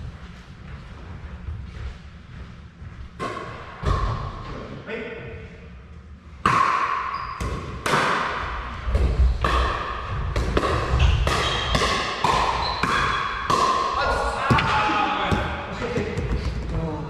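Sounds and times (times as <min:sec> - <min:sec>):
ball bouncing on wooden floor: 0:07.4 - 0:13.9, 0:15.3 - 0:16.8.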